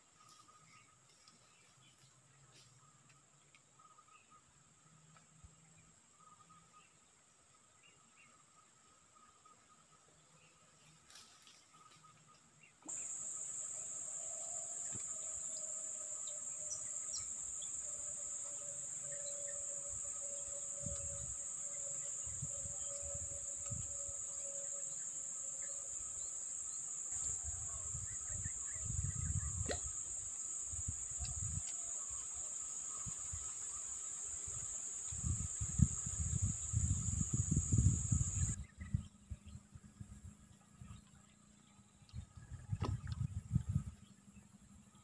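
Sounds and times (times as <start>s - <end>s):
insects droning: 0.0s - 45.0s
low rumble on microphone: 35.2s - 45.0s.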